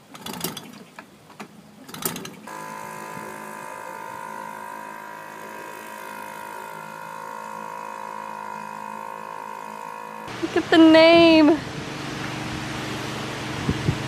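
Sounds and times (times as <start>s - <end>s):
starter cord rattling: 1.8s - 3.3s
outboard motor running: 2.0s - 14.0s.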